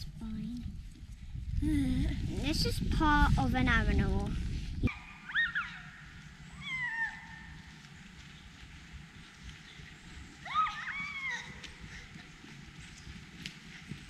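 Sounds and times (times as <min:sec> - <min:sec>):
high animal calls: 0:04.9 - 0:07.7.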